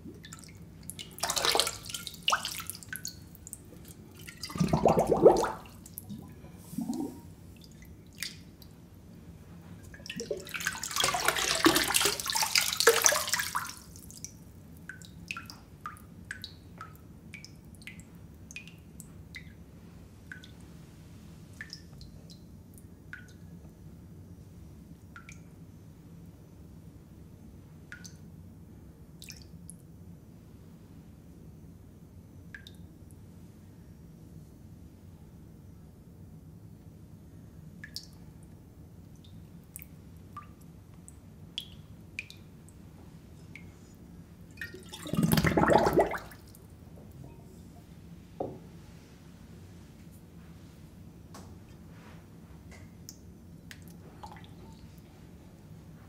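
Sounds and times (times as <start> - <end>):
water dripping: 0.0 - 8.8, 9.8 - 19.6, 20.2 - 20.6, 21.6 - 23.5, 25.1 - 25.6, 27.9 - 28.3, 29.2 - 29.8, 32.5 - 32.9, 37.8 - 42.8, 44.5 - 46.7.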